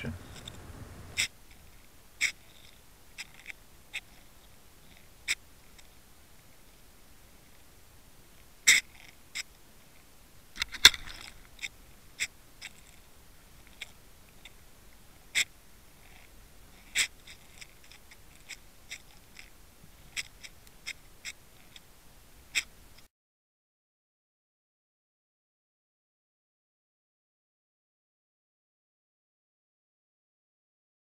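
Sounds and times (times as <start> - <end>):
sharp clicks and ticks underwater: 0.0 - 6.0, 10.6 - 21.9, 22.5 - 23.0.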